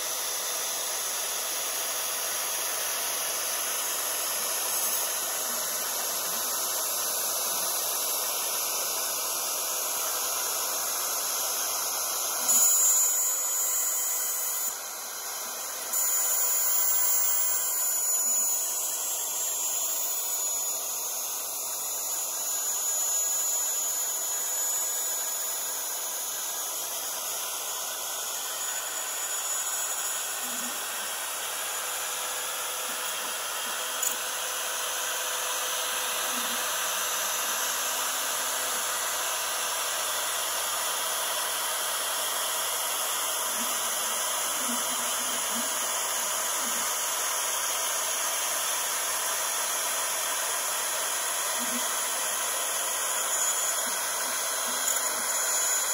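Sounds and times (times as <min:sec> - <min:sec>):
router spindle cutting metal: 0:00.0 - 0:55.9.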